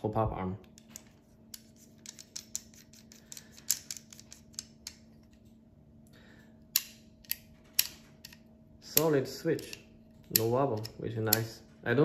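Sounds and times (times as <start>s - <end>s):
pistol parts clicking: 1.5s - 5.4s, 6.7s - 11.6s.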